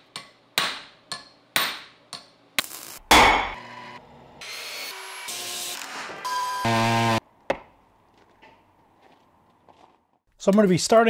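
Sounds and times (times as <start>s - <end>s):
hammer striking anvil: 3.1s - 3.6s
electric miter saw whirring: 3.6s - 7.2s.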